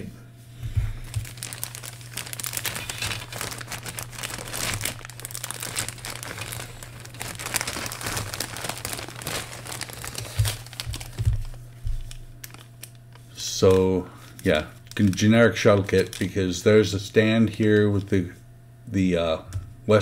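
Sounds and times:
plastic bags crinkling: 0:00.9 - 0:16.7, 0:17.5 - 0:18.2.

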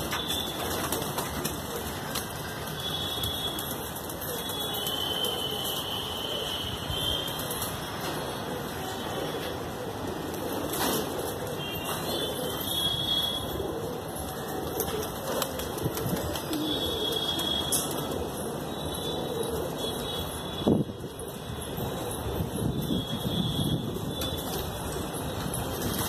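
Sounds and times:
pigeon wings flapping: 0:00.1 - 0:05.1, 0:14.6 - 0:17.3
pigeons cooing: 0:06.9 - 0:23.2.

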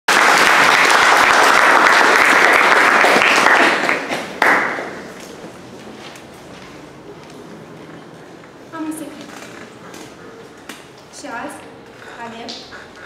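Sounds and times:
audience applauding: 0:00.1 - 0:05.2.

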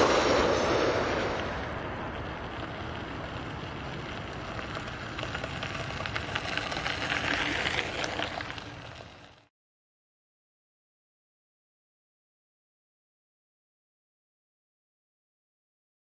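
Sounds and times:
distant jet engine roar: 0:00.0 - 0:09.4.

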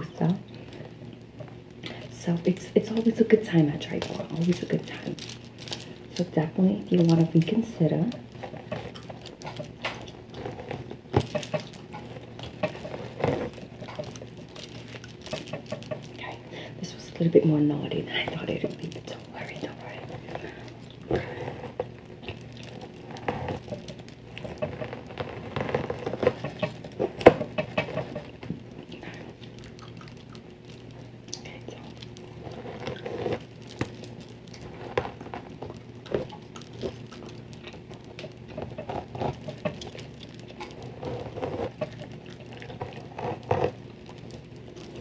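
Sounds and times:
metal bangles jangling and clicking: 0:01.8 - 0:45.0
gum chewing: 0:19.9 - 0:45.0.

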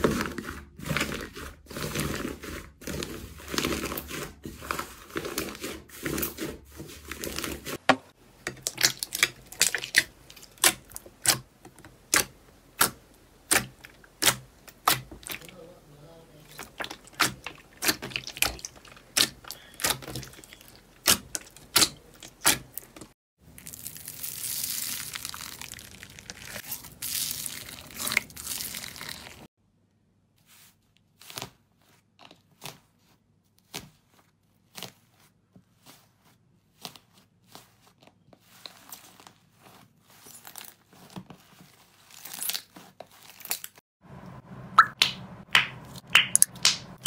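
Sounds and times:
crinkly crackling: 0:13.6 - 0:29.5
slime clicking and popping: 0:44.8 - 0:47.0.

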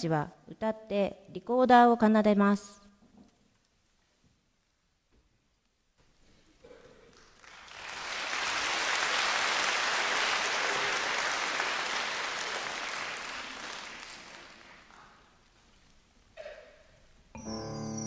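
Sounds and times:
audience applauding: 0:07.1 - 0:15.6.

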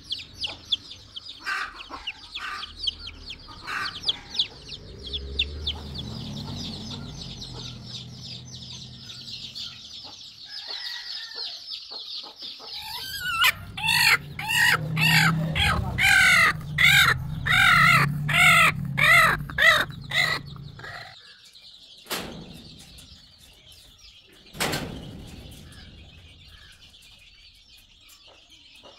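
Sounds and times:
chicks peeping: 0:00.0 - 0:28.9
chicken calling loudly: 0:12.8 - 0:21.2.

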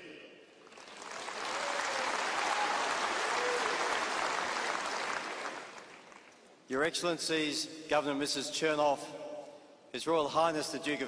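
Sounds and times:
large crowd applauding: 0:00.6 - 0:06.5.

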